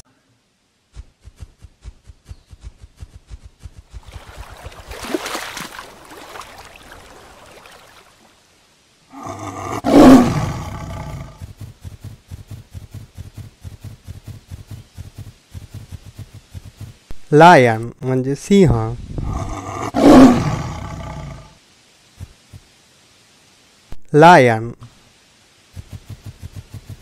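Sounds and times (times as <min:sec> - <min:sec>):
lion roar: 0:09.1 - 0:11.5, 0:19.2 - 0:21.6.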